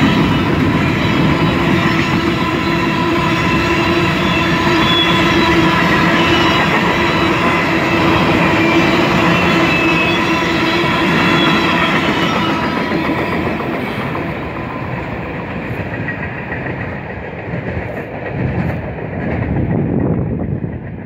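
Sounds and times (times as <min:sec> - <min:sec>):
high ringing from wheels: 0:00.0 - 0:17.0
train wheels rolling on rails: 0:00.0 - 0:21.0.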